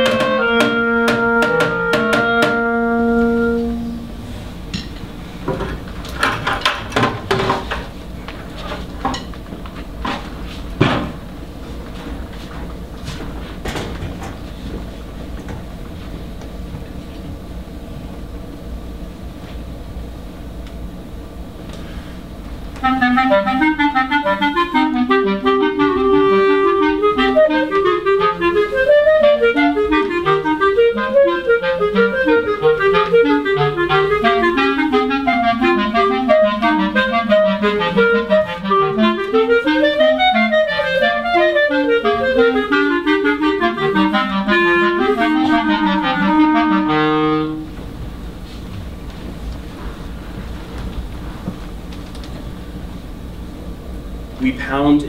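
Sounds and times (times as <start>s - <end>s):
two clarinets playing fast runs: 0.0s - 4.3s, 22.8s - 47.8s
low steady hum: 0.0s - 55.0s.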